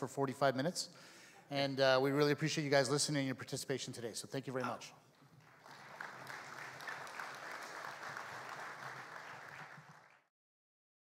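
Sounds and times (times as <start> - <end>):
audience applauding: 5.2 - 10.3.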